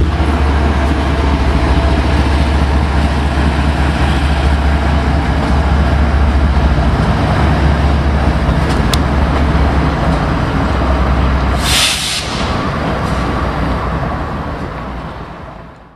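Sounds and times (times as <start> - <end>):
freight locomotive engine rumble: 0.0 - 15.9
train noise: 0.0 - 15.9
loud hiss: 11.6 - 12.7.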